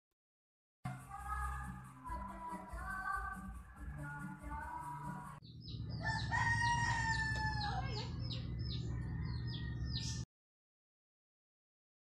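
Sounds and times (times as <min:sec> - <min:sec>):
rooster crowing: 0:05.8 - 0:10.2.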